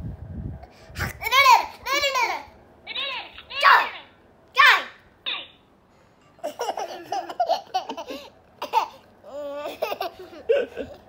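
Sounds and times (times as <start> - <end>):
toddler laughing: 6.4 - 11.0.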